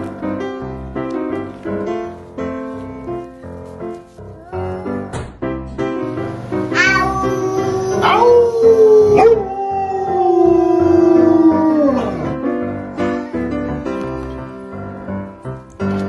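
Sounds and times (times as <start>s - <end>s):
background music: 0.0s - 16.0s
dog howling: 6.8s - 12.4s
man howling: 6.8s - 12.4s.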